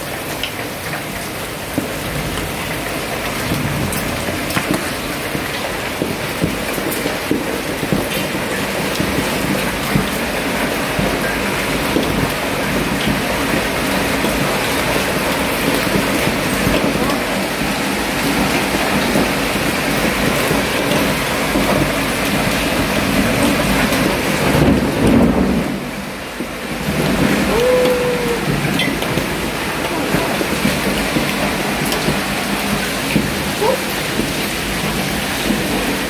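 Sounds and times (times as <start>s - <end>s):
heavy rain and hail hitting: 0.0s - 36.0s.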